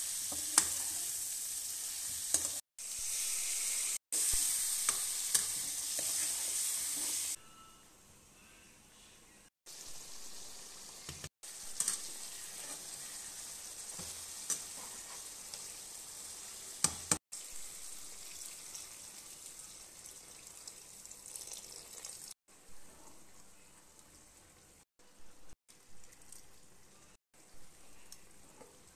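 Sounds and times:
curry sizzling in a frying pan: 0.0s - 7.4s, 9.7s - 22.4s.

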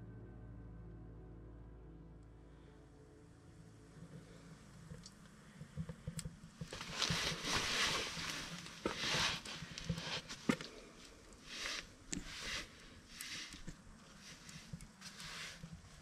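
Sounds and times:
wood fire crackling: 4.0s - 16.0s
rustling swishes: 6.7s - 16.0s.

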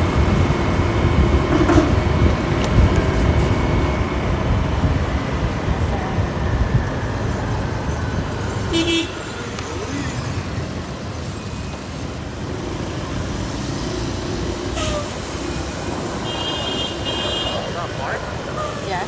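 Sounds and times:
wind noise: 0.0s - 16.2s
scooter engine rumble: 0.0s - 19.0s
vehicle horn beep: 8.7s - 9.4s, 16.2s - 18.2s.

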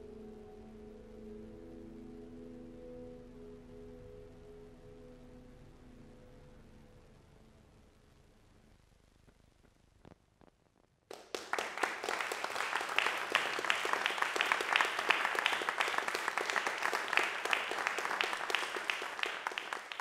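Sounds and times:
audience applauding: 11.1s - 20.0s.

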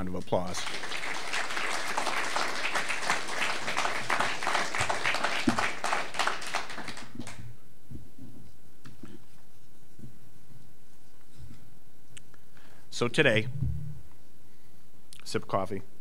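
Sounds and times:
audience applauding: 0.5s - 7.4s.

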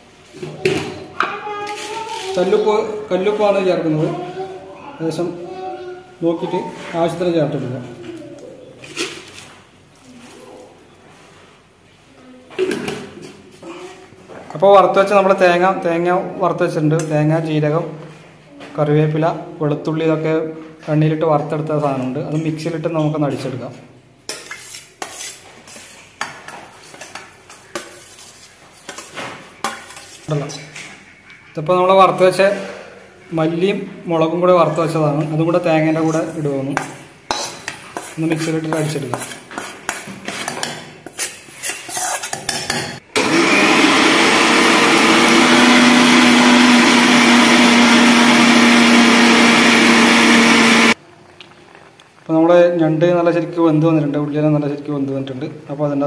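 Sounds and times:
spoon scraping steel plate: 24.3s - 30.3s, 37.2s - 43.0s
electric mixer grinder running: 43.2s - 51.0s.

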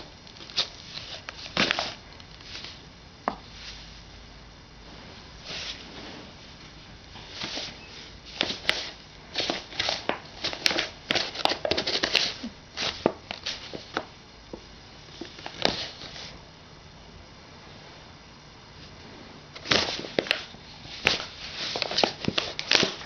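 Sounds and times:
paper bag crinkling: 8.3s - 14.0s, 19.6s - 23.0s.

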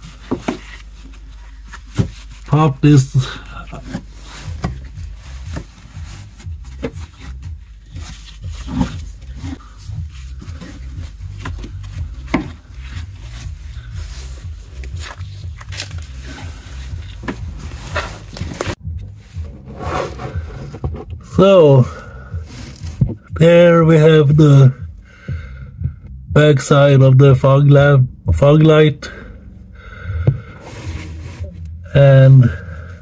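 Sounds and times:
steady low rumble: 0.0s - 33.0s.

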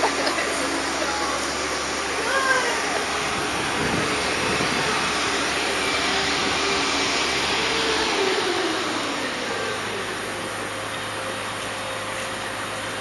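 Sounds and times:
city street traffic: 0.0s - 13.0s
wind on microphone: 3.2s - 6.8s.

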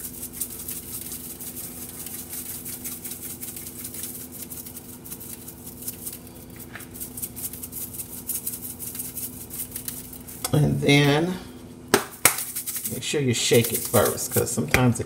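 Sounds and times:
spice shaker rattling: 0.0s - 10.4s, 12.0s - 14.5s
steady low hum: 0.0s - 15.0s.

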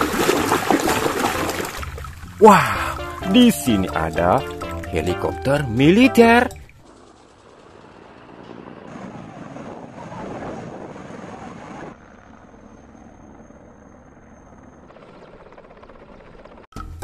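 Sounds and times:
helicopter rotor and turbine noise: 6.6s - 16.7s.

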